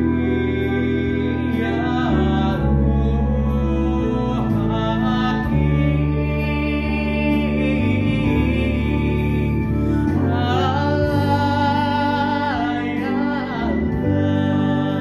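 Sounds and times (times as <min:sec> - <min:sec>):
held chords and bass notes: 0:00.0 - 0:15.0
young man singing: 0:00.0 - 0:15.0.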